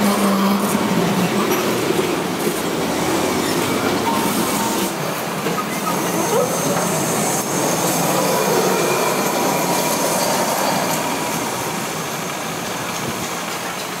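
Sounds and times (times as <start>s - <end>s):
street noise: 0.0s - 14.0s
tram running on rails: 0.0s - 14.0s
wheels squealing on rails: 0.0s - 14.0s.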